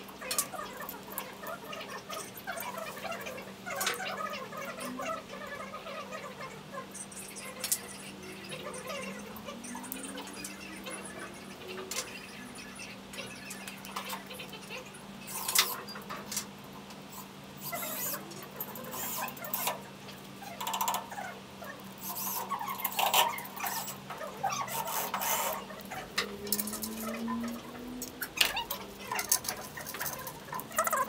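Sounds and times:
faint steady hum: 0.0s - 31.0s
wrench turning a bolt: 17.6s - 19.8s, 20.6s - 21.1s, 24.7s - 25.6s
metal clicks and rattles: 20.6s - 21.1s.

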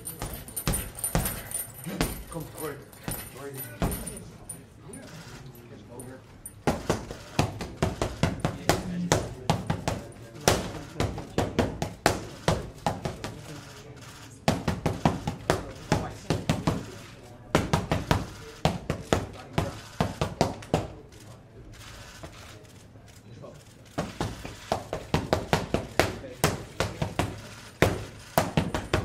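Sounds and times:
boxing gloves slapping mitts: 6.6s - 13.5s, 14.4s - 16.9s, 17.5s - 21.0s, 24.0s - 29.0s.

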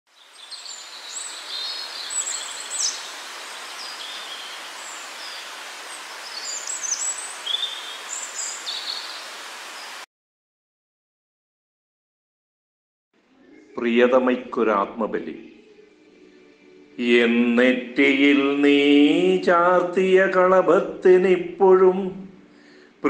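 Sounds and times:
steady hiss: 0.2s - 10.0s
bird chirps and whistles: 0.4s - 3.1s, 6.2s - 9.2s.

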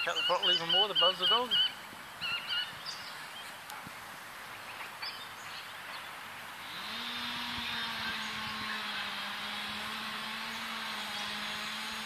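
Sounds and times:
bird chirps: 0.0s - 3.6s
model plane motor humming: 6.6s - 12.0s
propeller whine: 6.6s - 12.0s.

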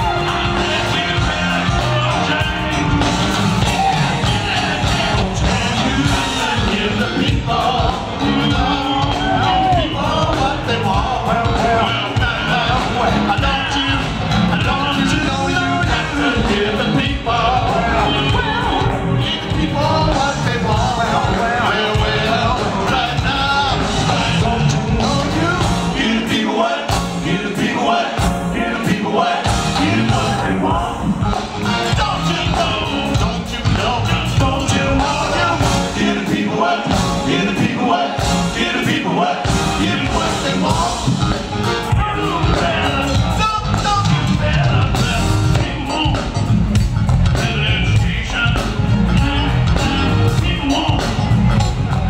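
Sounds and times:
live soul band playing: 0.0s - 52.0s
man singing into a microphone: 4.2s - 26.9s, 31.9s - 41.2s, 41.8s - 46.4s, 47.4s - 51.3s.

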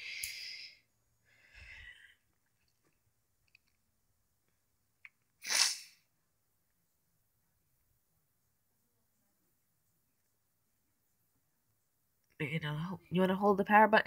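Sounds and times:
soft breathy hiss: 0.0s - 2.5s
person sneezing: 5.4s - 6.0s.

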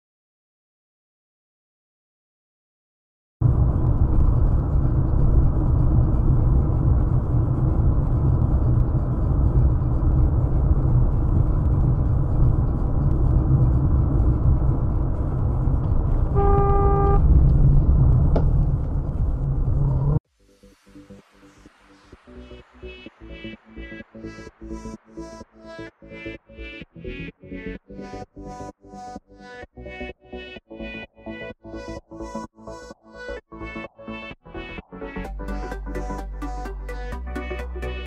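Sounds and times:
car driving road noise: 3.4s - 20.2s
car horn: 16.3s - 17.4s.

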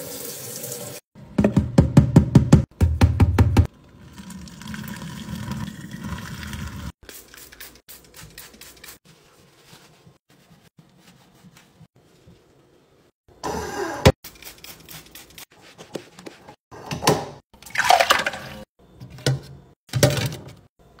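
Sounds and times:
cloth wiping a faucet: 7.2s - 12.6s.

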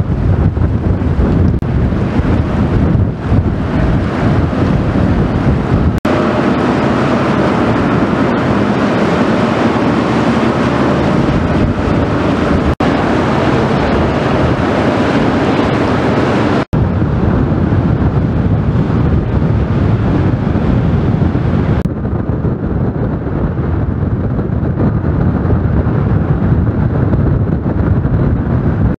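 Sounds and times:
steady low rumble: 0.0s - 29.0s
wind buffeting the microphone: 0.0s - 29.0s.

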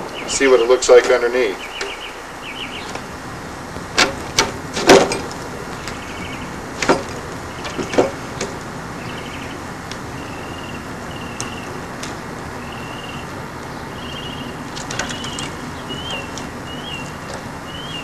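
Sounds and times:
sharp knocks and crackles: 1.8s - 10.2s, 10.8s - 12.6s, 14.5s - 17.7s.

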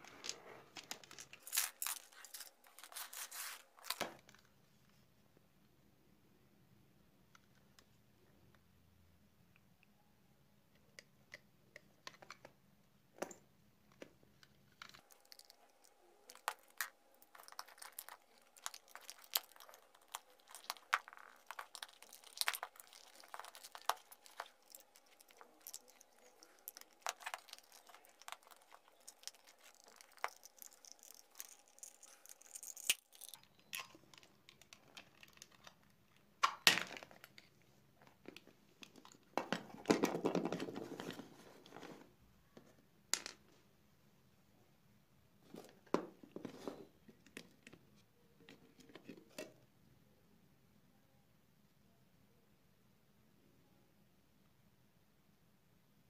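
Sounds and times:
plastic cover cracking: 0.2s - 4.4s, 14.8s - 37.4s.

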